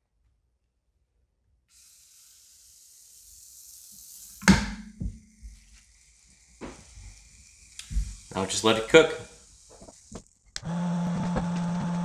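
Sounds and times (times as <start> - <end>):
batter sizzling on hot plates: 1.7 - 10.6
lid closing with a clunk: 4.4 - 5.1.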